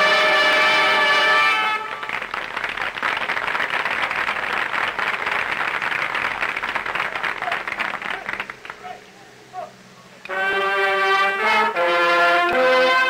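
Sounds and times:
audience applauding: 0:01.5 - 0:08.9.

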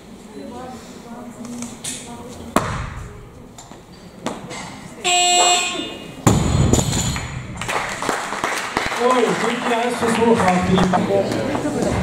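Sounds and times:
electronic buzzer: 0:05.0 - 0:06.0.

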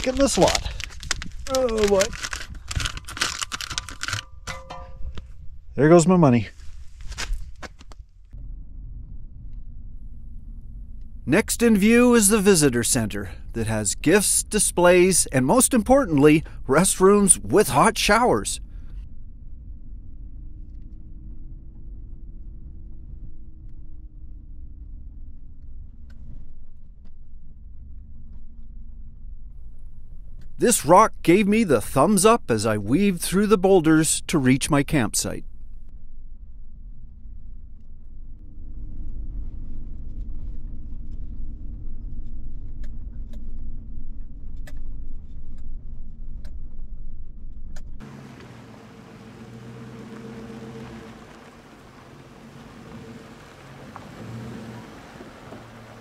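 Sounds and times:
sharp clicks and rattles: 0:00.0 - 0:05.3
truck engine and tyres rumbling: 0:00.0 - 0:08.0, 0:46.6 - 0:56.0
engine and road rumble: 0:00.0 - 0:56.0.

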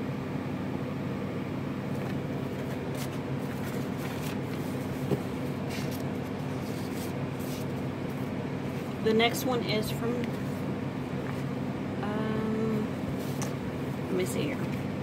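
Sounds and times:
low mechanical hum: 0:00.0 - 0:15.0
paper rustling and tapping: 0:01.9 - 0:07.7.

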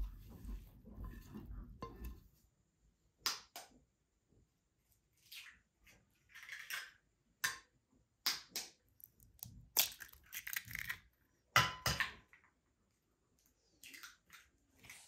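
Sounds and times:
eggshells cracking: 0:09.0 - 0:11.1.

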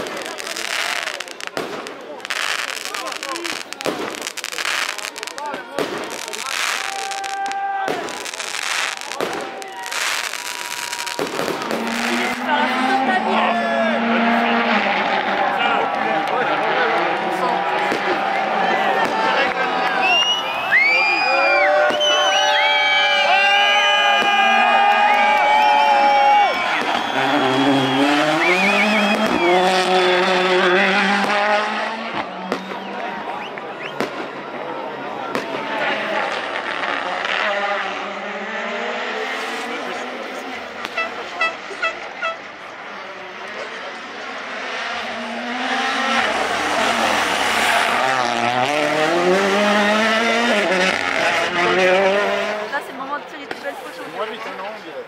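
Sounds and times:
firework cracks: 0:00.0 - 0:12.4
crowd cheering: 0:00.0 - 0:55.0
rally car engine revving: 0:10.0 - 0:20.4, 0:26.7 - 0:34.4, 0:35.3 - 0:53.3.

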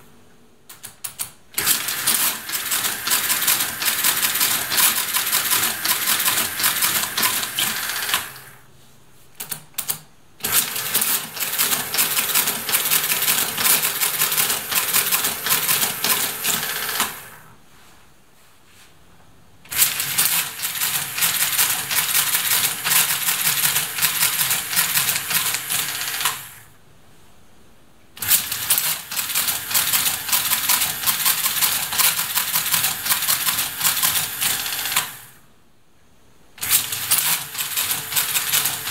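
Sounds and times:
mechanical calculator clattering: 0:00.7 - 0:08.4, 0:09.4 - 0:17.2, 0:19.7 - 0:26.5, 0:28.2 - 0:35.2, 0:36.6 - 0:38.9.

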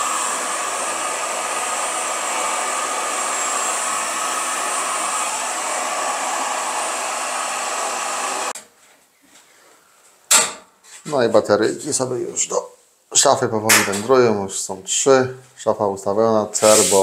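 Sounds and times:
heat gun blowing: 0:00.0 - 0:08.6, 0:16.6 - 0:17.0.

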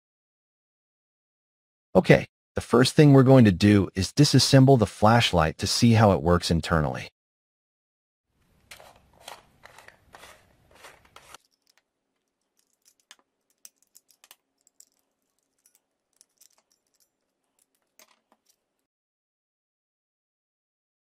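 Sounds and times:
screwdriver clicks and scrapes: 0:08.7 - 0:18.8.

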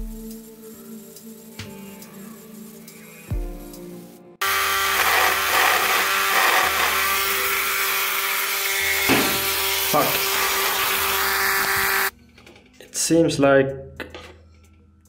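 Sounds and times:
grinding hiss on glass: 0:00.2 - 0:03.8
rotary tool motor whine: 0:04.4 - 0:12.1.

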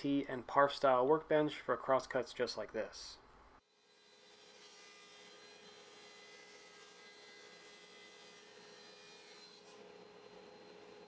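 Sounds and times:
table saw cutting wood: 0:03.7 - 0:11.0.

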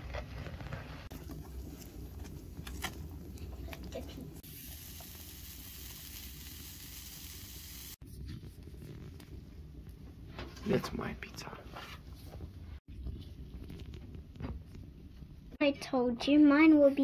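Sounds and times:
dough sizzling on hot stove: 0:00.8 - 0:08.2.

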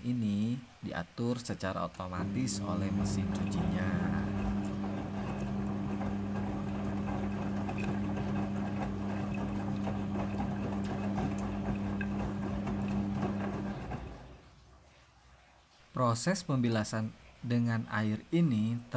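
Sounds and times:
washing machine hum: 0:02.2 - 0:15.1
water churning and sloshing: 0:02.2 - 0:15.9.

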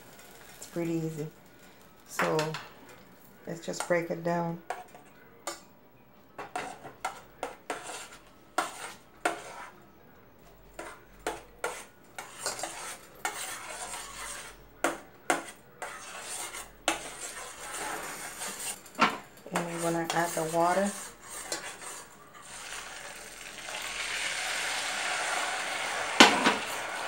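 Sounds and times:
metal spoon scraping saucepan: 0:06.4 - 0:09.8, 0:10.8 - 0:14.6, 0:15.3 - 0:23.2.

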